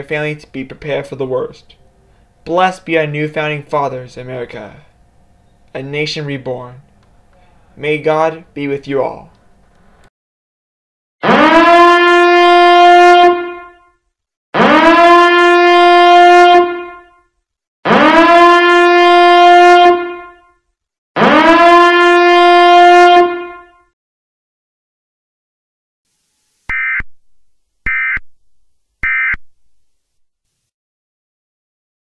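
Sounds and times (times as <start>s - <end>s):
emergency siren blasts: 11.2s - 13.9s, 14.6s - 17.2s, 17.8s - 20.5s, 21.2s - 23.8s.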